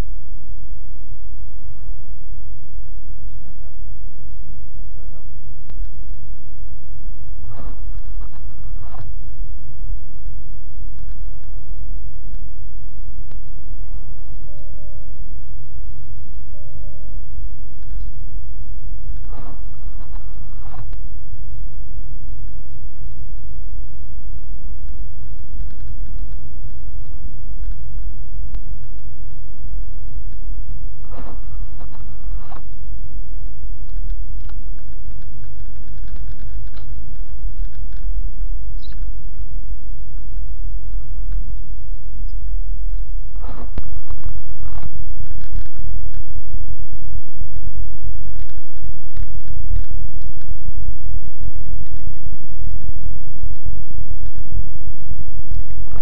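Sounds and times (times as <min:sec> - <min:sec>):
car tyres and engine rumble: 0:00.0 - 0:56.0.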